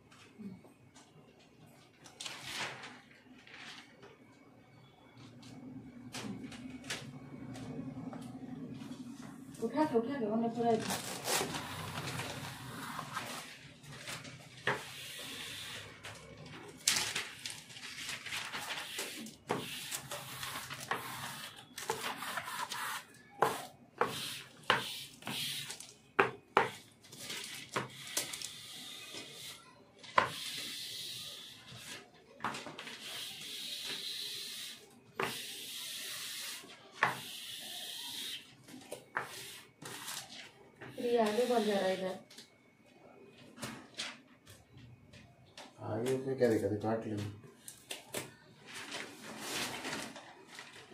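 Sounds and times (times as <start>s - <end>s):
squeegee scraping over vinyl: 10.9s - 13.5s, 18.5s - 25.7s.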